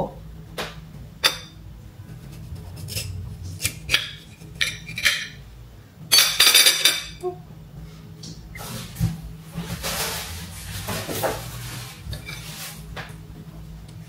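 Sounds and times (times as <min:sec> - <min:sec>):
plates and cutlery clinking: 0:01.2 - 0:01.6, 0:02.9 - 0:05.4, 0:06.1 - 0:07.2.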